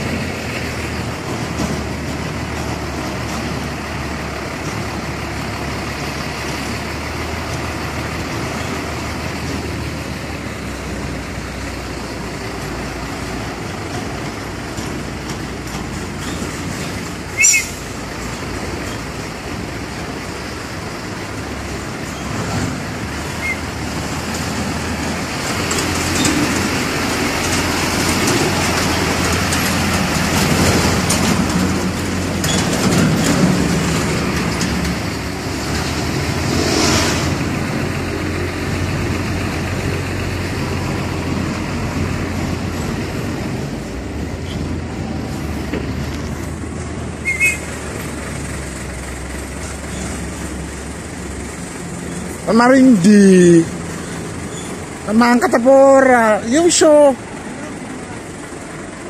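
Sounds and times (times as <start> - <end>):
diesel truck engine running: 0.0 - 59.0
road noise: 0.0 - 59.0.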